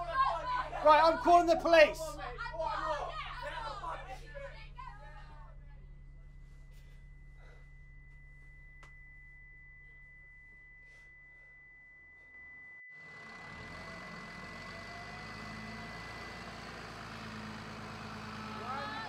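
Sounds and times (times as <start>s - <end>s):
high-pitched tone ringing: 5.8s - 16.6s
bus engine hum: 13.0s - 19.0s
traffic passing: 13.0s - 19.0s.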